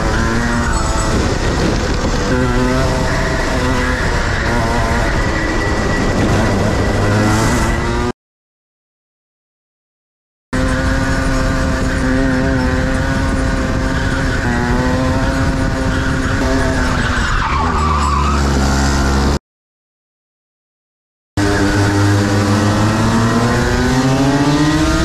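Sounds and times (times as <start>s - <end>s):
kart engine revving: 0.0s - 8.1s, 10.6s - 19.4s, 21.4s - 25.0s
tyres skidding: 0.0s - 8.1s, 10.6s - 19.4s.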